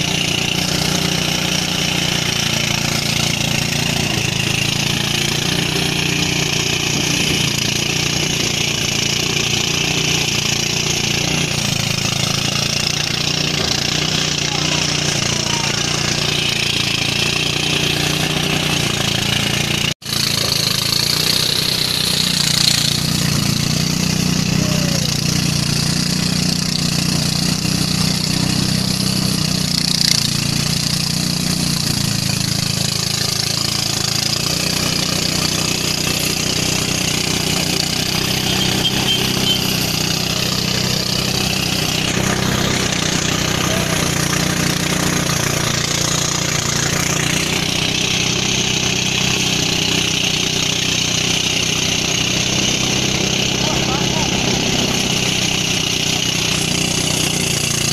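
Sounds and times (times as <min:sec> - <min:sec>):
engine drone: 0:00.0 - 0:57.9
threshing machine rushing noise: 0:00.0 - 0:57.9.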